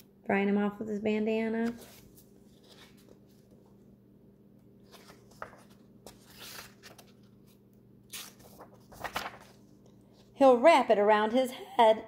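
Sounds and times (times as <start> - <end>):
page swishes: 1.6 - 3.7, 4.8 - 9.8
book pages rustling: 1.6 - 3.9, 4.8 - 10.3.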